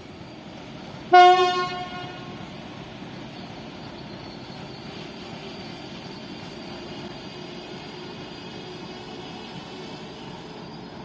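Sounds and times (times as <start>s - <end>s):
locomotive horn blast: 1.1s - 2.4s.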